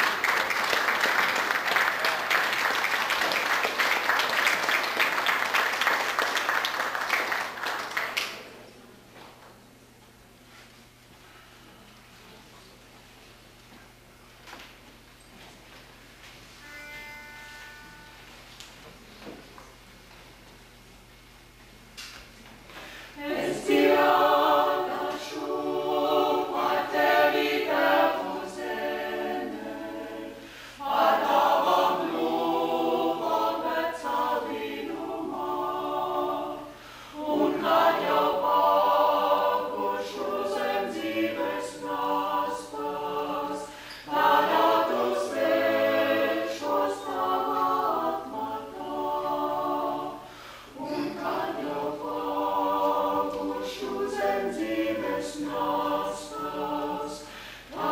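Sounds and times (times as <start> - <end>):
vocal ensemble singing a cappella: 22.8 - 57.9.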